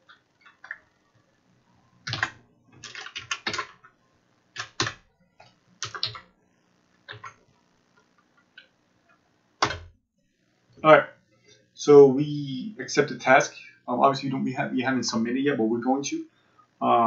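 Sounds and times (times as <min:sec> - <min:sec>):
computer keyboard typing: 0:00.0 - 0:00.9, 0:02.0 - 0:04.0, 0:04.6 - 0:05.0, 0:05.8 - 0:06.3, 0:07.1 - 0:07.4, 0:09.6 - 0:09.9.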